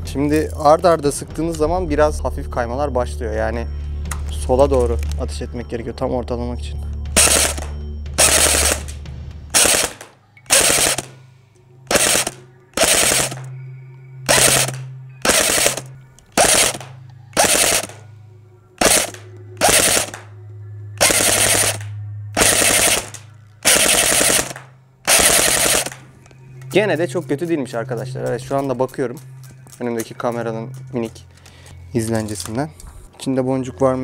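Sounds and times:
airsoft gun firing bursts: 7.2 - 11.2, 11.9 - 13.5, 14.3 - 18.0, 18.8 - 20.3, 21.0 - 26.1.

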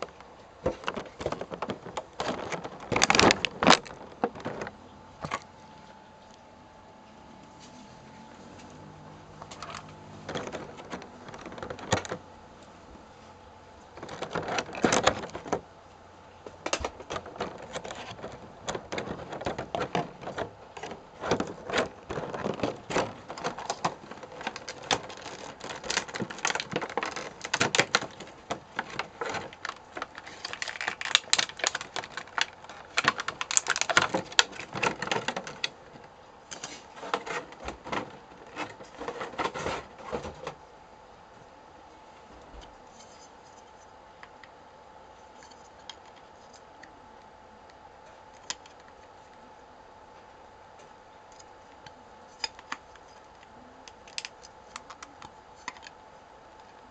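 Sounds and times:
plastic packaging crackling: 0.0 - 5.5, 9.5 - 12.2, 13.8 - 15.7, 16.5 - 40.4.

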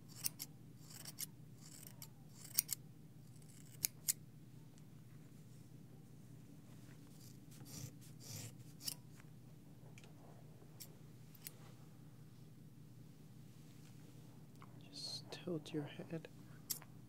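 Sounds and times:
scissors snipping hair: 0.1 - 2.8
soft brushing rustle: 4.6 - 16.5.

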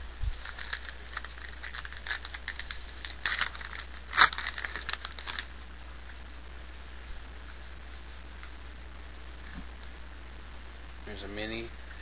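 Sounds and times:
cards rustling and flicking: 0.2 - 5.5.

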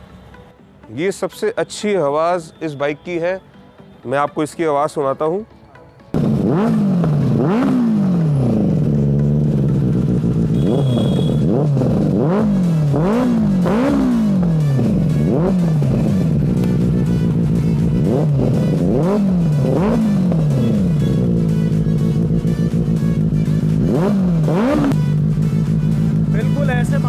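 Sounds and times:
motorcycle engine revving: 6.2 - 27.0.

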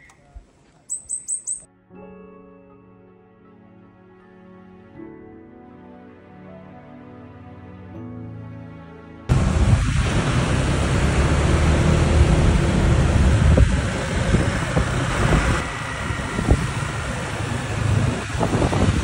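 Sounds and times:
motor scooter riding: 9.3 - 19.0
surf on shore: 9.3 - 19.0
wind rumble on microphone: 9.3 - 19.0.

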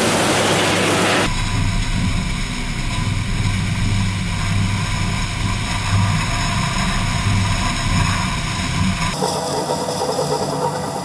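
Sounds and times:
combine harvester engine drone: 0.0 - 11.0.

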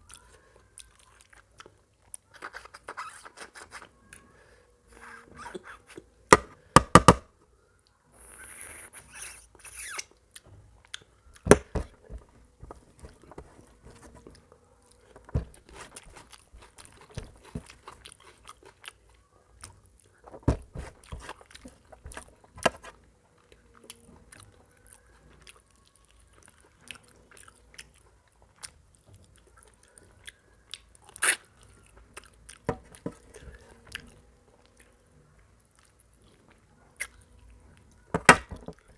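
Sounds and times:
man chewing food: 0.0 - 2.3, 10.1 - 38.9.

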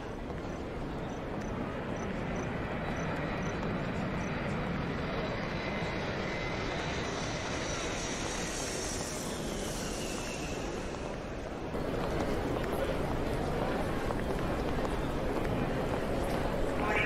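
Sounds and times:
jet engines rumbling: 0.1 - 14.6, 15.2 - 17.0
faint high whine: 16.6 - 17.0.

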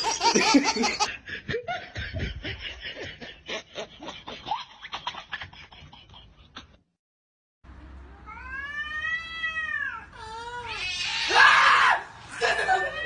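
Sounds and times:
person snickering and laughing: 0.0 - 6.8.

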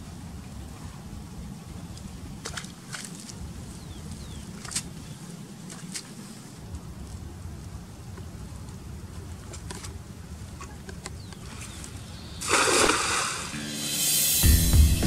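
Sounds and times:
outdoor background noise: 0.0 - 15.0
background music: 13.2 - 15.0.

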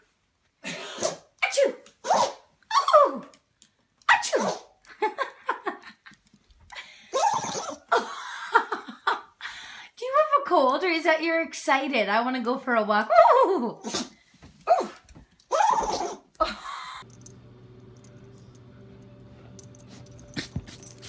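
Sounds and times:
dog sneezing: 0.6 - 2.5, 4.1 - 4.8, 13.8 - 14.2.

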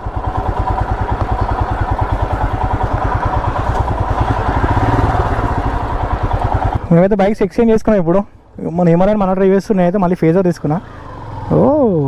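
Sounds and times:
motorcycle engine running: 0.0 - 7.6.

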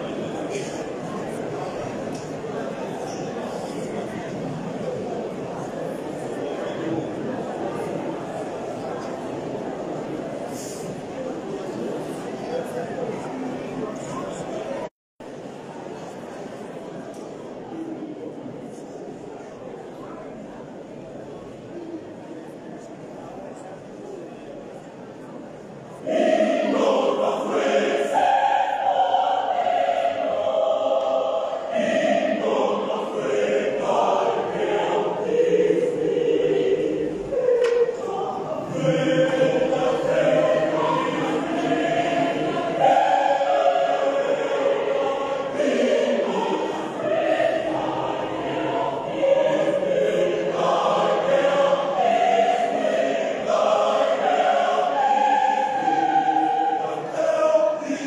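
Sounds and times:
choir singing gospel: 26.0 - 58.0.

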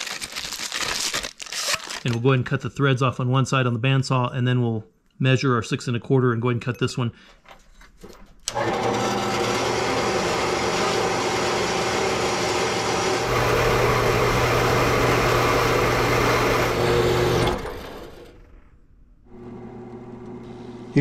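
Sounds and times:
bandsaw cutting metal pipe: 8.5 - 18.2.

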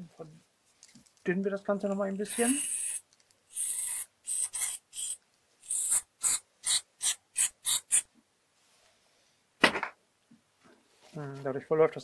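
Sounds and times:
aerosol spray can hissing: 2.3 - 8.0.

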